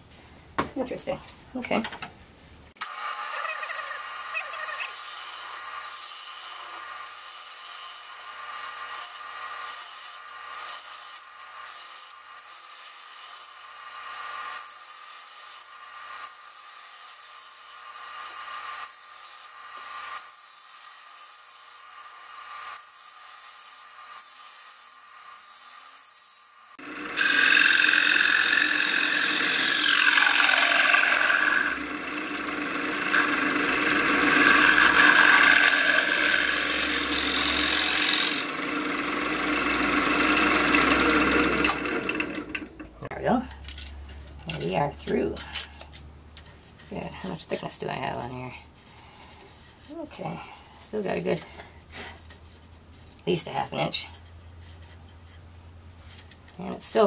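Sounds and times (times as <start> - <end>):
lathe tool cutting wood: 26.8 - 43.0.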